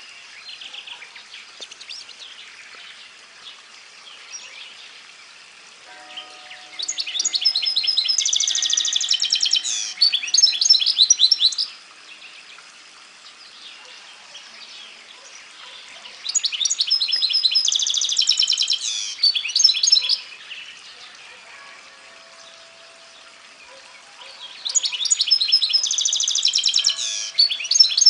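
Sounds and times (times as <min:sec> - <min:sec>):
bird singing twittering song: 0:00.0 - 0:28.0.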